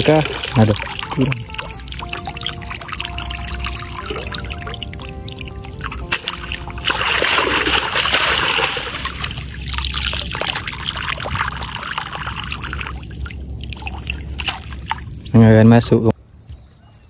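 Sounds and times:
water splashing: 0.0 - 15.5
water trickling and dripping: 0.0 - 15.5.

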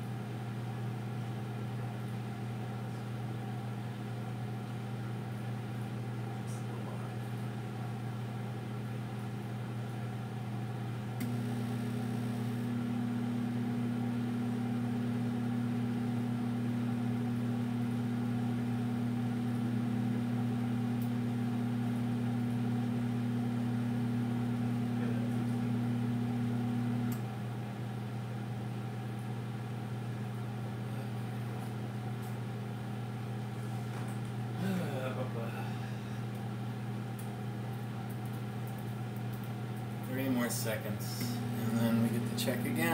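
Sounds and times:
microwave oven humming: 0.0 - 42.9
louder hum: 40.2 - 42.9.

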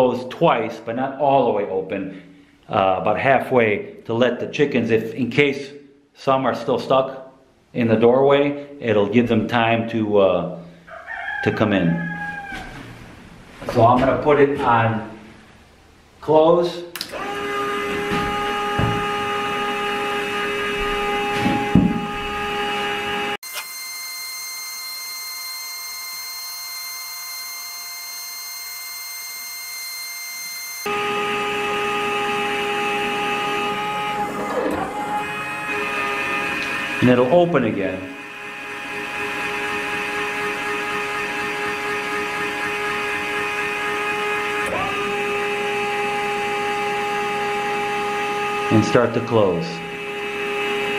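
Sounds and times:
click: 16.9 - 17.2
motor whine: 17.0 - 50.9.

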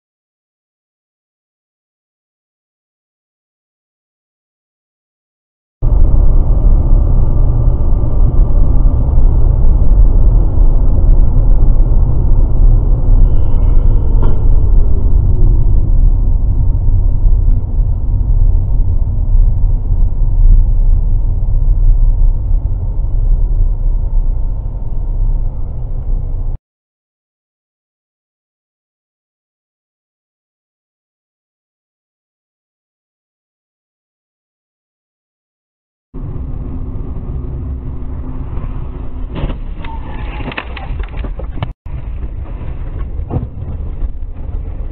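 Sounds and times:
car engine rumble: 5.8 - 26.6, 36.2 - 44.9
road noise: 5.8 - 26.6, 36.2 - 44.9.

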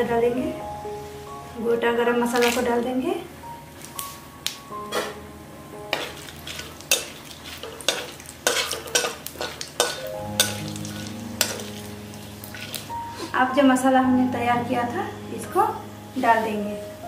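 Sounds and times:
spatula scraping and tapping pan: 4.8 - 5.2, 5.9 - 11.8
spices sizzling in hot oil: 5.8 - 13.3.

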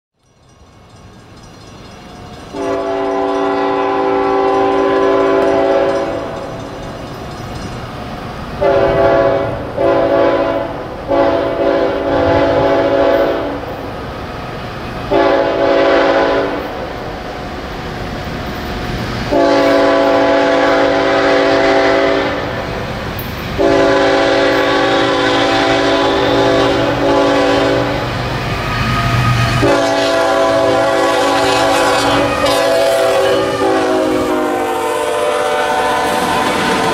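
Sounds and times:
low rumble of locomotives: 0.2 - 36.9
locomotive air horn blasts: 2.5 - 6.4, 8.6 - 13.6, 15.1 - 16.8, 19.3 - 22.6, 23.6 - 28.0, 29.1 - 36.9.

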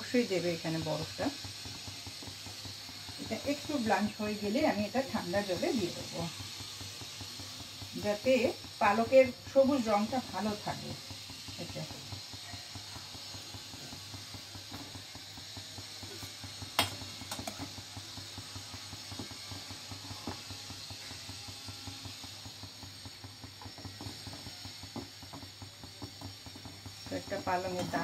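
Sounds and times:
water boiling and bubbling: 0.0 - 28.0
metal spoon tapping: 16.8 - 17.6.

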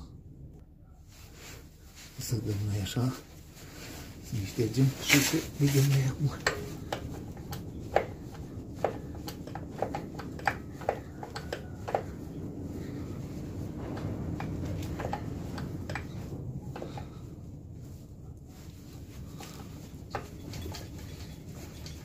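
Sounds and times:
steady low rumble: 0.0 - 22.0
clicks and metallic knocks of tools: 5.0 - 12.1.

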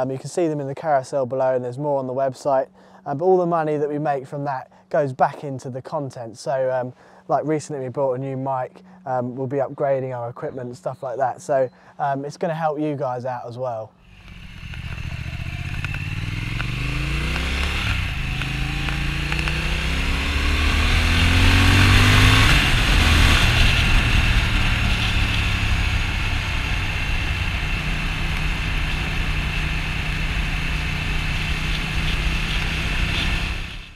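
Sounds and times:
motorcycle engine accelerating: 14.0 - 33.9
loud wind rush: 19.8 - 33.9.

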